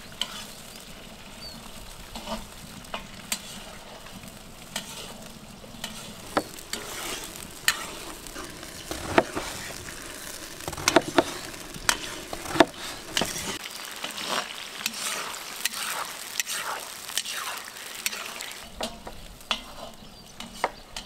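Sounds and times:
meat sizzling in fat: 0.0s - 21.0s
metal ladle scraping pot: 3.3s - 13.6s.

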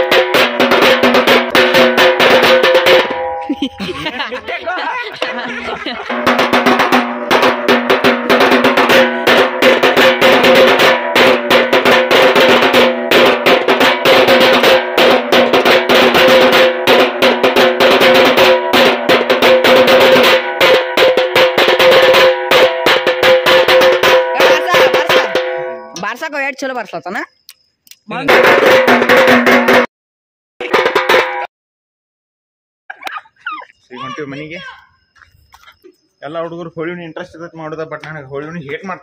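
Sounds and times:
drums beaten in fast rhythm: 0.0s - 26.2s, 28.1s - 29.9s, 30.6s - 31.5s
drum heads ringing: 0.0s - 26.3s, 28.2s - 29.9s, 30.6s - 31.5s.

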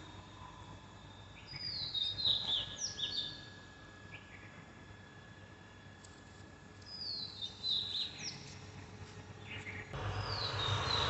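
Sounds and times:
steady hiss with low hum: 0.0s - 11.0s
birds whistling downward calls: 1.4s - 3.5s.

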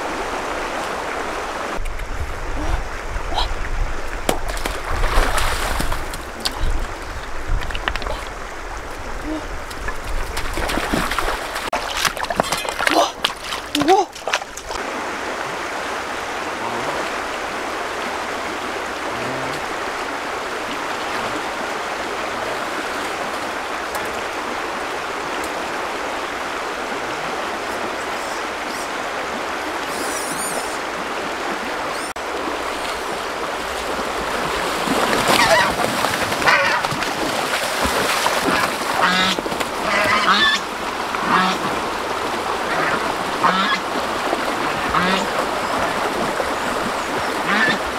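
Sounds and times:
stream water running: 0.0s - 47.9s
geese honking: 36.4s - 36.8s, 38.5s - 40.6s, 41.2s - 41.7s, 42.7s - 43.8s, 44.9s - 45.3s, 47.4s - 47.8s.

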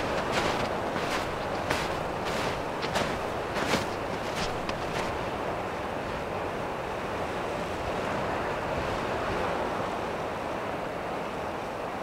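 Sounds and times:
steady rushing noise: 0.0s - 6.3s.

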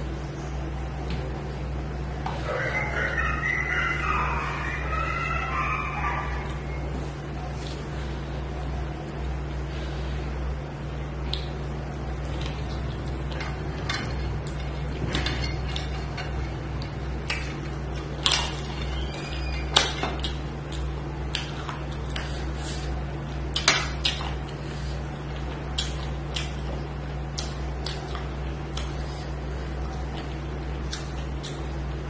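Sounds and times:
steady low hum: 0.0s - 32.0s
chewing: 11.2s - 32.0s.

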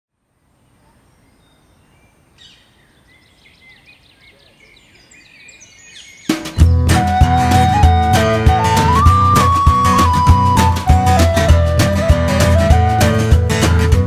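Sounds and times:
faint background noise: 0.1s - 6.5s
birds chirping: 0.3s - 11.4s
acoustic band with guitar and drums: 6.2s - 14.0s.

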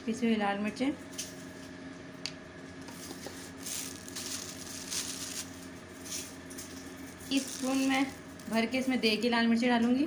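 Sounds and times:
faint steady hum: 0.0s - 10.0s
soft rustling of spices: 2.9s - 8.8s.

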